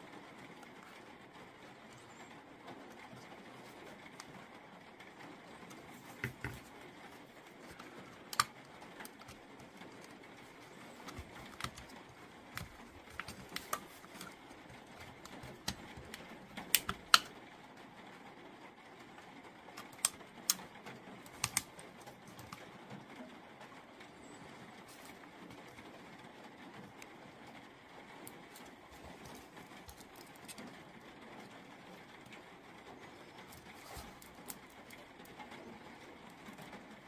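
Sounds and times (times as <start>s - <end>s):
small clicks and taps on plastic: 5.5s - 17.4s, 19.7s - 23.2s, 28.2s - 37.0s.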